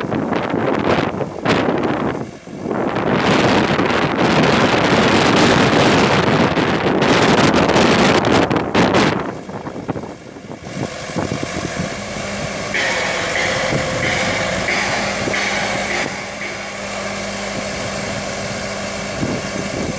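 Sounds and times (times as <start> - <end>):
truck engine running: 0.0 - 19.9
wind buffeting microphone: 0.0 - 19.9
high whine: 11.8 - 19.9.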